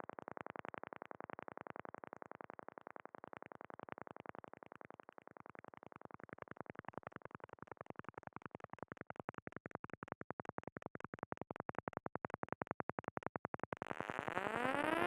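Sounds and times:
electronic pulses: 13.9 - 15.0.

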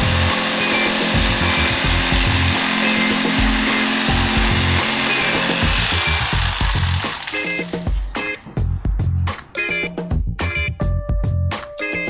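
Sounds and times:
jigsaw cutting board: 0.0 - 8.0.

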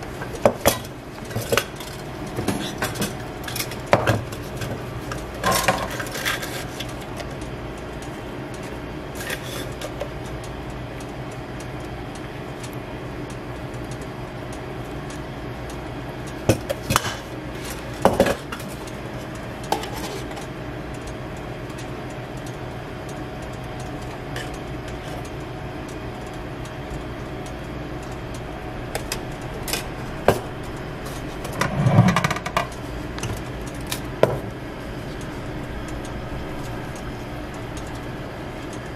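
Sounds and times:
kitchen equipment hum: 0.0 - 38.9
utensils clinking on metal trays: 0.2 - 7.2, 19.7 - 20.5.

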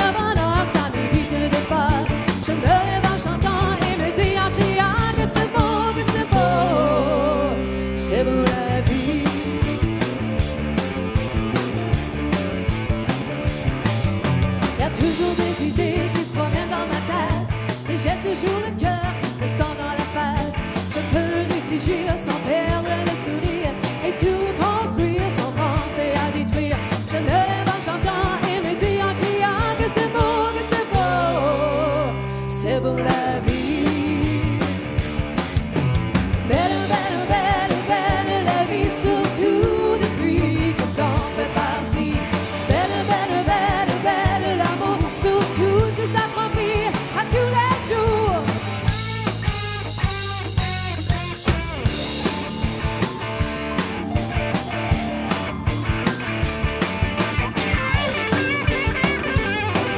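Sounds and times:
woman singing: 0.0 - 9.7, 14.8 - 34.8, 36.5 - 48.6
band playing: 0.0 - 59.9
steady beat: 49.0 - 59.9
electronic keyboard: 51.6 - 59.9.

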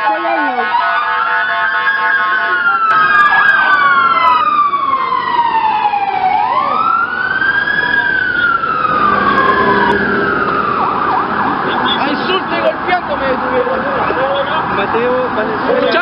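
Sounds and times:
emergency sirens wailing: 0.0 - 16.0.

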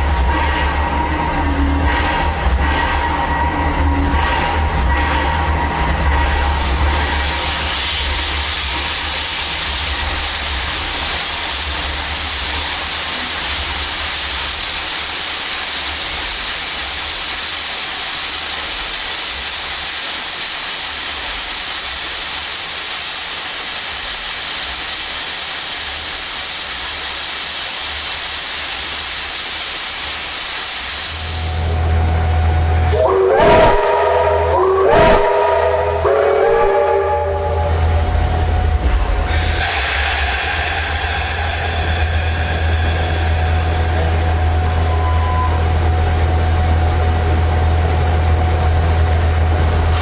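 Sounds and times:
steam hissing: 0.0 - 50.0
low rumble: 37.6 - 50.0.

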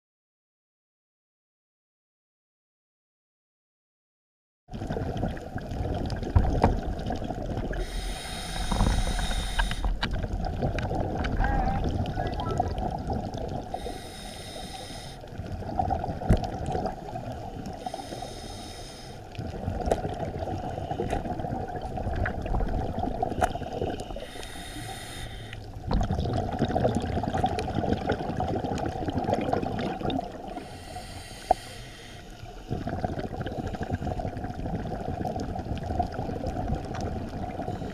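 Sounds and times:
exhaled bubbles bursting: 4.7 - 14.0, 15.2 - 18.1, 19.3 - 24.3, 25.7 - 31.0, 32.6 - 37.9
regulator hissing underwater: 7.6 - 10.1, 13.3 - 15.4, 16.9 - 19.6, 20.3 - 21.5, 23.0 - 25.8, 29.4 - 34.5.

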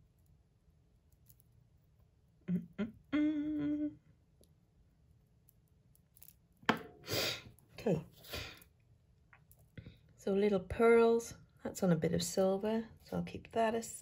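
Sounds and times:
woman humming: 2.4 - 4.1
short vocal sounds: 2.5 - 4.0.

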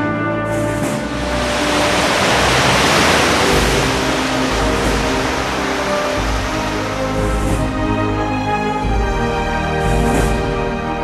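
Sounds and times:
theme music with held chords: 0.0 - 11.0
high shimmer: 1.0 - 8.5.

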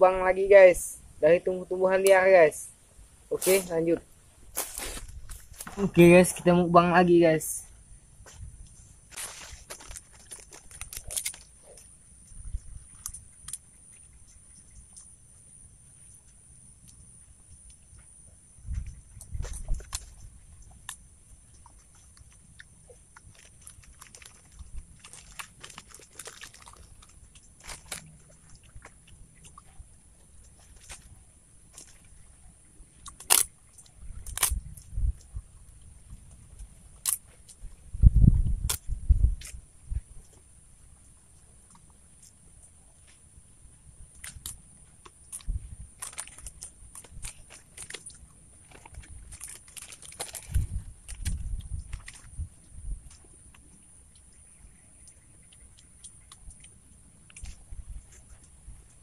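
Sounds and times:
chewing crunchy food: 4.5 - 6.0, 8.3 - 15.2, 18.8 - 35.3, 44.1 - 59.0.

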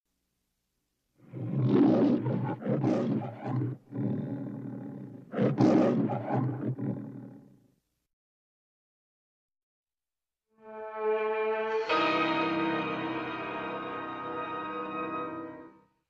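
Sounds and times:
lion roaring: 1.2 - 7.6.

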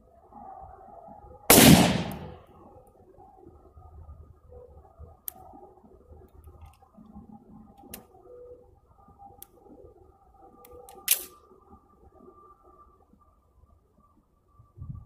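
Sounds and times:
rifle action metallic clicks: 1.5 - 2.4, 10.6 - 11.4.

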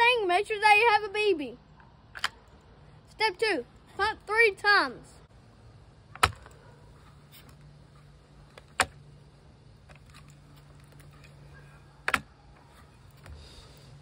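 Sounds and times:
faint steady background: 0.0 - 14.0
metallic clacks of gun cocking lever: 2.2 - 2.6.

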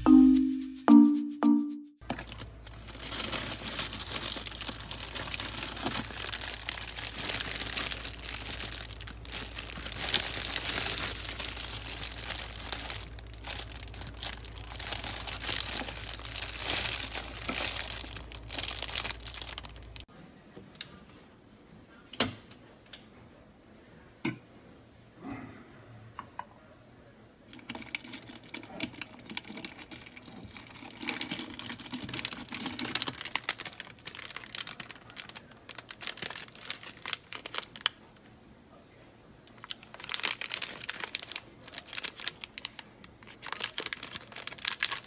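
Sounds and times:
plastic bags crinkling: 2.0 - 20.1, 29.4 - 38.0, 39.5 - 45.0.

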